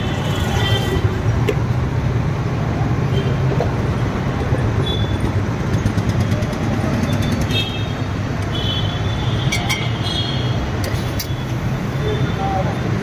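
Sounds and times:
low rumble of street noise: 0.0 - 13.0.

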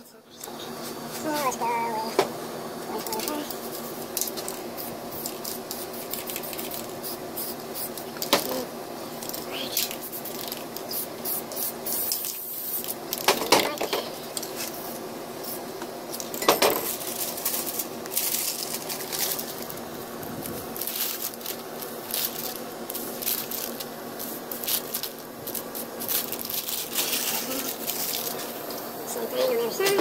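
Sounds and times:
crumpled paper rustling: 3.0 - 7.0, 9.2 - 10.8, 16.8 - 28.6.

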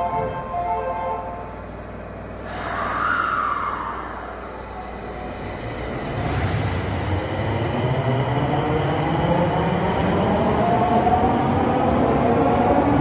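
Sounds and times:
train running rumble: 3.5 - 13.0.

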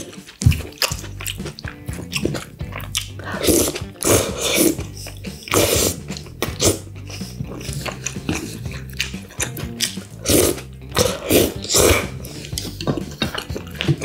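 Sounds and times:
chewing: 0.0 - 14.0
slurping spaghetti: 0.0 - 14.0.

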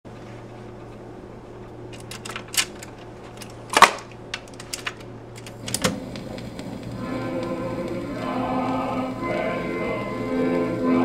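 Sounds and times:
motor hum: 0.5 - 11.0
record changer clicks and clacks: 1.9 - 9.7.

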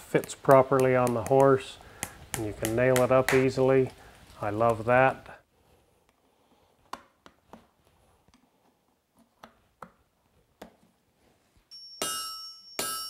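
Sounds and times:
hammer striking hot iron on anvil: 12.0 - 13.0.

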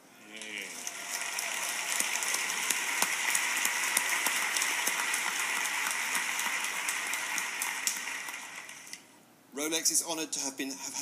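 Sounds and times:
audience applauding: 0.6 - 9.0.

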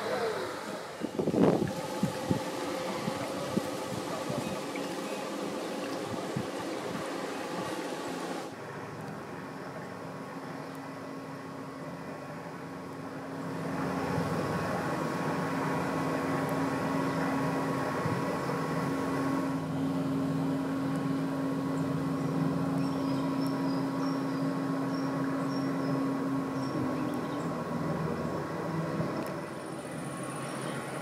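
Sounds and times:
motor hum: 0.0 - 9.0
bird chirps: 22.2 - 26.0.

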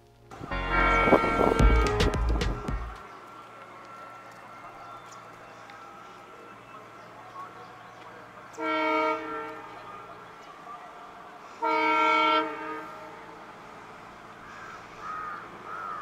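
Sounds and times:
locomotive horn blasts: 0.4 - 3.0, 8.6 - 9.8, 11.6 - 13.2.

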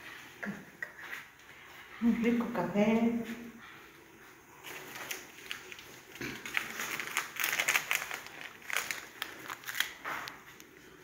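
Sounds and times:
dry crackling rustle: 4.6 - 10.6.

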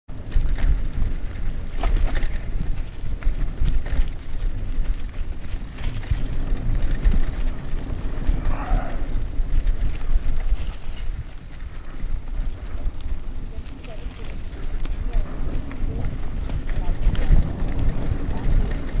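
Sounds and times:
bike clicks and rattles: 0.1 - 19.0
bike tyres rolling on dirt trail: 0.1 - 19.0
wind rumbling on microphone: 0.1 - 19.0.

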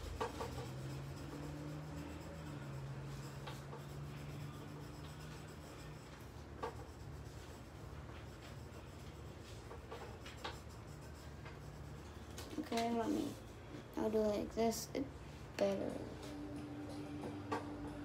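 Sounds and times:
marker scratching on paper: 0.0 - 14.4
faint low hum: 0.0 - 18.0.

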